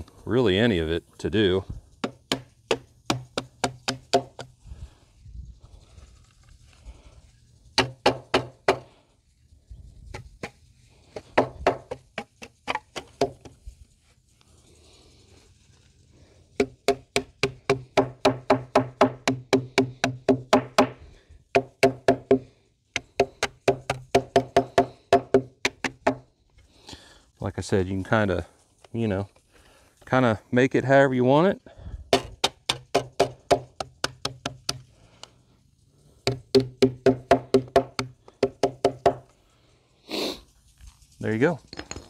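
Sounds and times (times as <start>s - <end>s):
hammer tapping on sheet metal: 7.8s - 8.8s, 16.6s - 21.0s, 23.0s - 26.2s, 32.2s - 34.8s, 36.3s - 39.2s.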